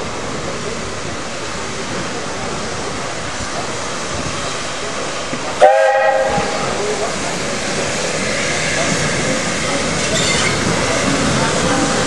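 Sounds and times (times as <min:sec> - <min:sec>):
steam locomotive whistle: 0:05.6 - 0:06.7.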